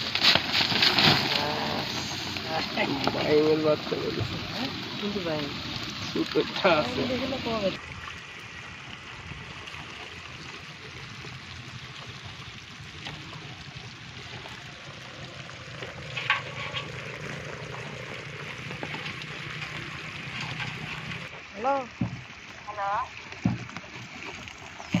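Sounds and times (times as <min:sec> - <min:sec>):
crabs crackling and fizzing: 0:00.0 - 0:25.0
steady low hum: 0:12.6 - 0:21.3.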